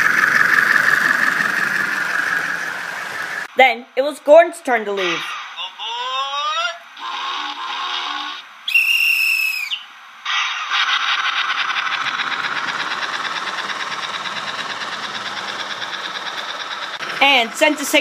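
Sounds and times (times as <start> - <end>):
steam locomotive whistle: 7.0 - 9.8
toy train clattering on track: 10.7 - 18.0.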